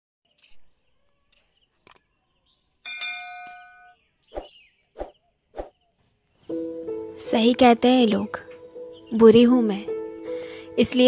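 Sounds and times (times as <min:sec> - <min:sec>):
faint high chirping: 0:00.3 - 0:07.0
bell-like chime: 0:02.9 - 0:04.0.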